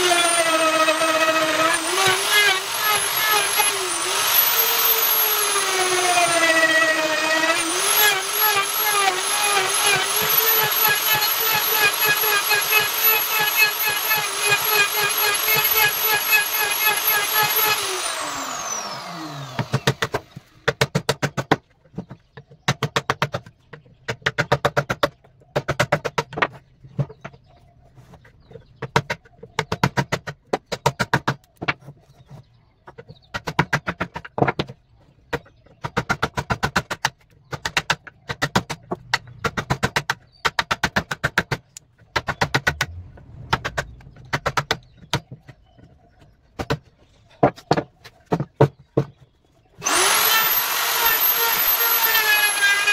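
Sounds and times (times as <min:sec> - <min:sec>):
electric router winding down: 0:17.2 - 0:19.8, 0:49.8 - 0:52.9.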